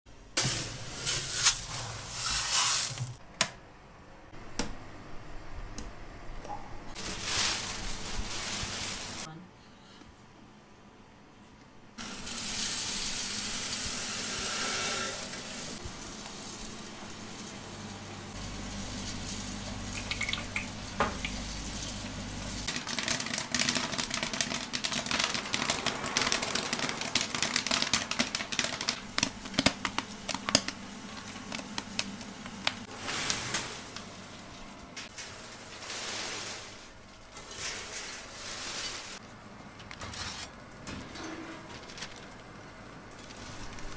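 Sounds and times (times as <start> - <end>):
oil sizzling: 12.0 - 37.2
popcorn popping: 15.2 - 34.2.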